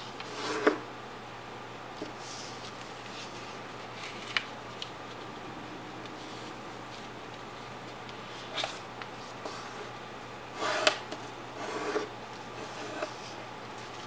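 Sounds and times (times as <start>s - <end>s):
low hiss: 0.9s - 10.5s
paper folding and rustling: 2.0s - 5.2s, 12.3s - 14.0s.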